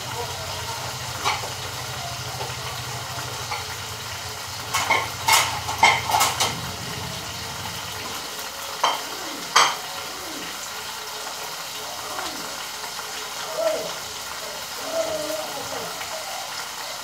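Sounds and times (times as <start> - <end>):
meat sizzling in a frying pan: 0.0 - 17.0
sharp kitchen clatters: 1.2 - 1.6, 4.6 - 6.6.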